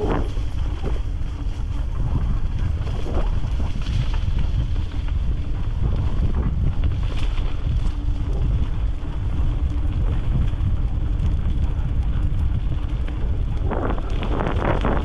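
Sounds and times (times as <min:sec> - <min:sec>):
bicycle tyres rolling on dirt: 0:00.0 - 0:15.0
wind buffeting microphone: 0:00.0 - 0:15.0.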